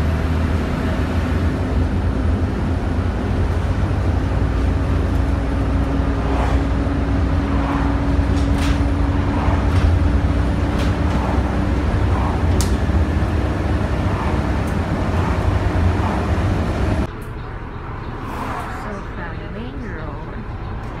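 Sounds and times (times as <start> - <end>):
bus engine and road rumble: 0.0 - 21.0.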